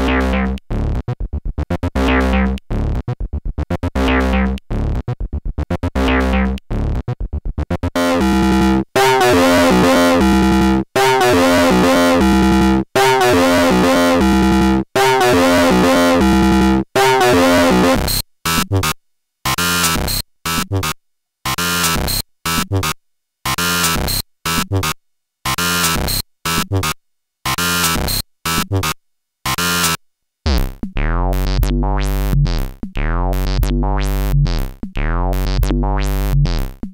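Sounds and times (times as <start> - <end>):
electronic noise music: 8.0 - 18.2.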